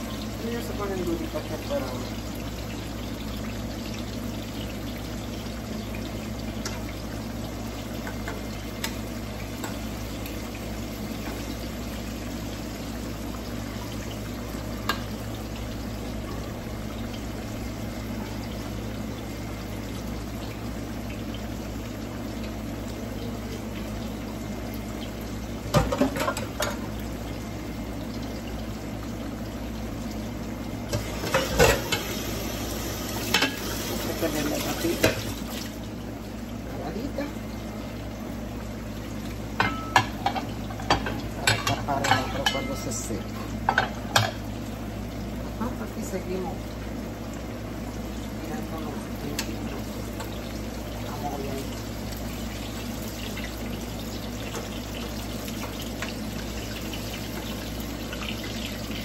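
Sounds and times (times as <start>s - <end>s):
plantain sizzling in oil: 0.0s - 59.0s
kitchen utensils clattering: 25.7s - 26.8s, 30.9s - 32.2s, 39.6s - 44.4s.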